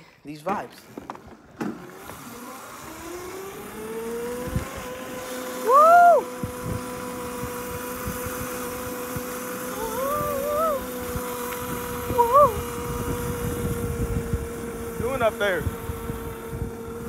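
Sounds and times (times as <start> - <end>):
electric scooter motor whining: 0.8 - 17.0
vocal whoop: 5.6 - 6.3, 9.8 - 10.9, 12.1 - 12.6.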